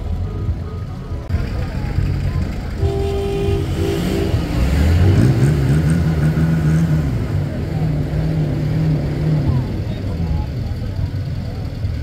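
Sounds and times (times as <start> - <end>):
vehicle engine revving: 1.3 - 12.0.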